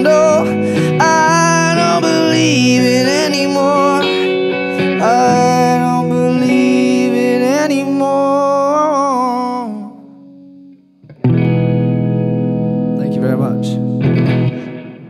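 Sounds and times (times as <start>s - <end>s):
person singing wordless melody: 0.0s - 10.4s
electric guitar chords: 0.0s - 15.0s.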